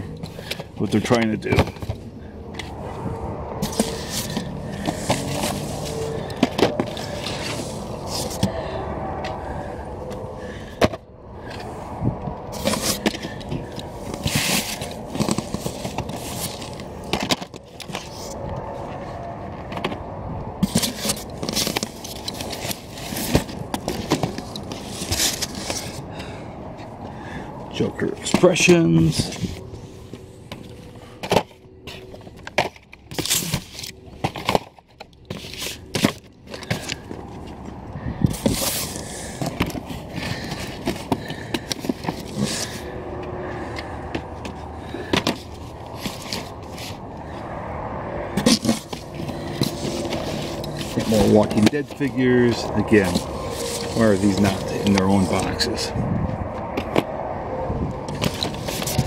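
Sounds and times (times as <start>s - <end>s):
cardboard and paper rustling: 0.0s - 26.4s, 27.8s - 47.4s, 48.2s - 55.9s, 58.1s - 59.0s
steady low rumble: 1.7s - 59.0s.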